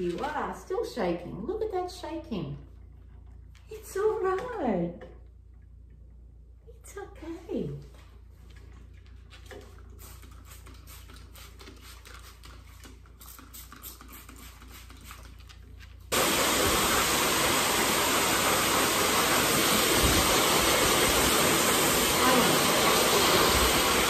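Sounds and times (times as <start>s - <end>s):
hose dryer blowing air: 16.1s - 24.0s.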